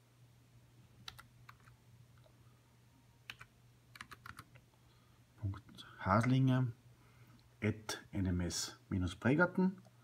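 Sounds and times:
low steady hum: 0.0s - 10.0s
keyboard typing: 1.0s - 2.3s, 3.2s - 4.6s.

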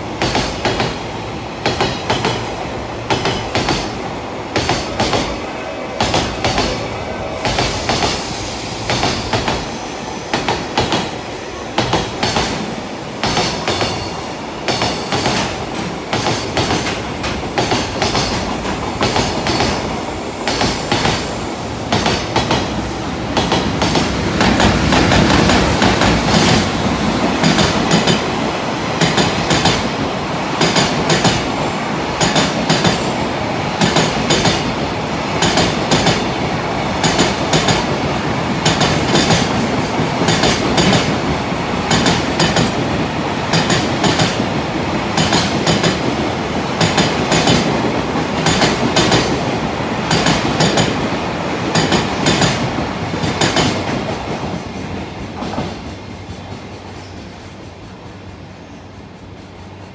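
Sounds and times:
train wheels clattering over rail joints: 3.1s - 5.3s, 11.8s - 19.8s, 21.9s - 28.3s, 32.2s - 33.1s, 33.8s - 36.4s, 37.0s - 51.0s, 51.6s - 56.7s.

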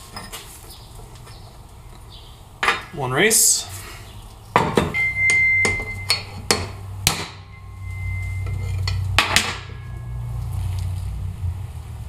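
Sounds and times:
hammer striking metal: 4.6s - 10.2s.

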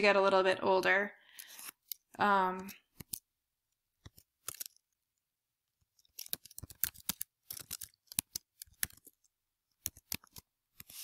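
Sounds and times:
computer keyboard typing: 6.0s - 10.4s.

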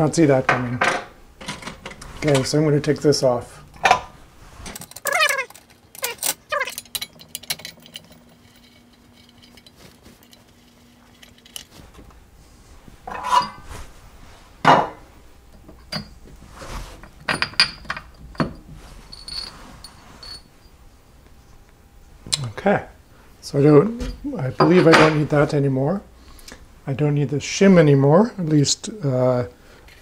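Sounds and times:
metal parts clinking and knocking: 4.7s - 11.8s, 17.3s - 20.5s.

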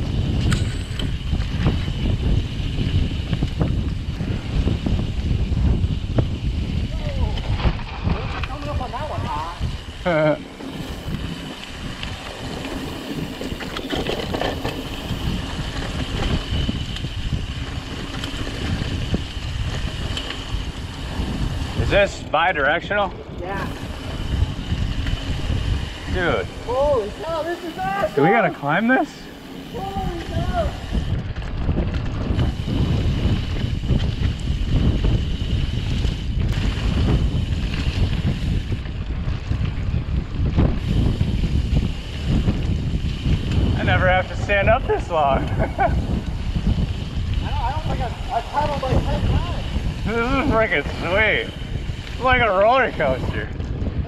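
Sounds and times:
bike tyres rumbling on trail: 0.0s - 54.0s
wind buffeting microphone: 0.0s - 54.0s
bike knocks and rattles: 10.2s - 21.8s.

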